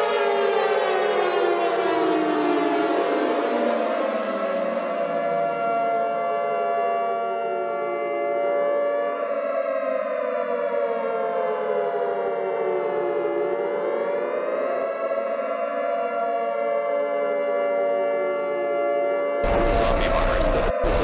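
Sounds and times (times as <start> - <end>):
eerie siren-like wail: 0.0 - 21.0
steady droning tone: 19.4 - 21.0.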